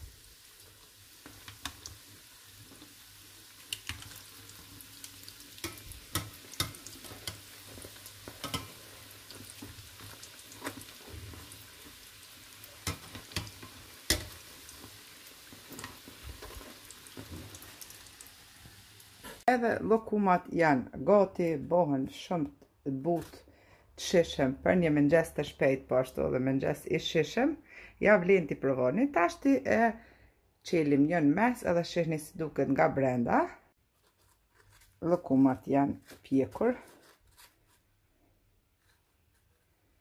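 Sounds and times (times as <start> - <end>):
oil sizzling in a pan: 0.0 - 19.5
metal tongs knocking pan: 5.6 - 7.5, 8.3 - 8.8, 12.8 - 14.4.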